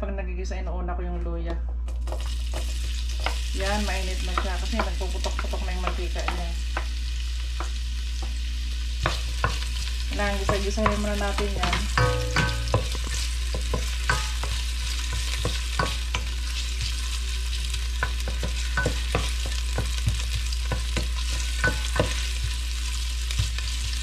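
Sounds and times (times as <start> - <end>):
steady low hum: 0.0 - 24.0
ginger sizzling in oil: 2.0 - 24.0
wooden spoon tapping pot: 2.1 - 6.9, 9.0 - 17.0, 18.0 - 22.6.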